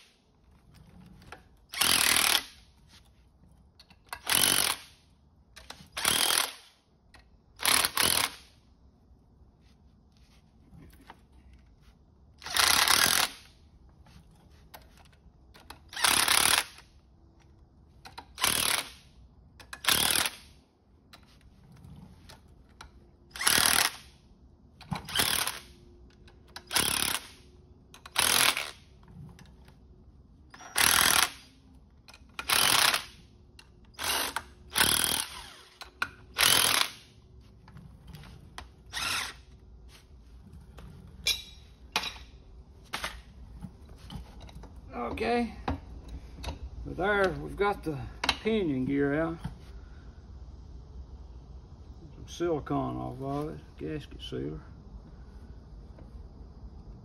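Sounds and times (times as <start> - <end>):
cordless power driver bursts: 34.0 - 37.1.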